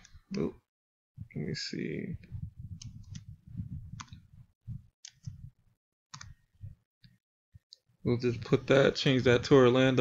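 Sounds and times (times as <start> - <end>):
mouse and keyboard clicks: 6.2 - 6.4.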